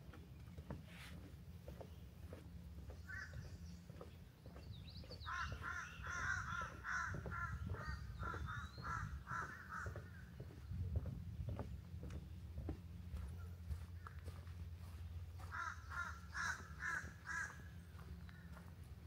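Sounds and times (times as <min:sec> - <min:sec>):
crow cawing: 0:05.3 - 0:09.9, 0:15.5 - 0:17.7.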